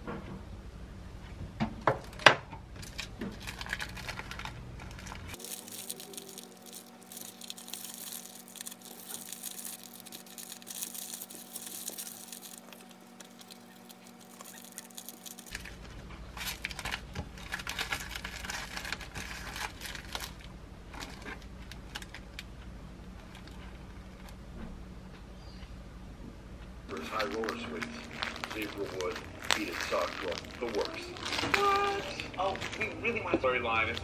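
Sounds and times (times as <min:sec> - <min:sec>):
plastic wrapper crinkling: 0:02.8 - 0:22.5, 0:26.9 - 0:34.0.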